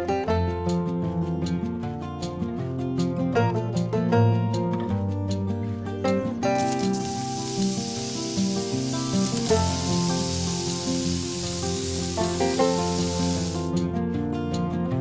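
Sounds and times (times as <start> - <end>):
background music with plucked notes: 0.0 - 15.0
onions sizzling in a pot: 6.6 - 13.7.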